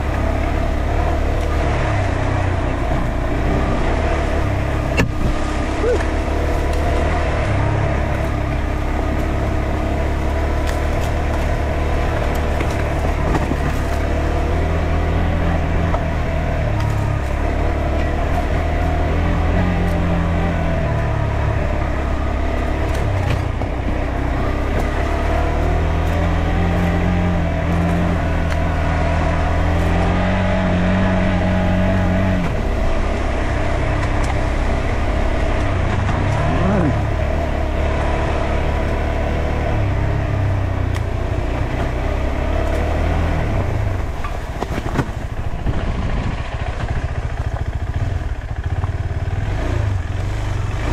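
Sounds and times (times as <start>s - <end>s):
motorcycle engine: 0.0s - 50.9s.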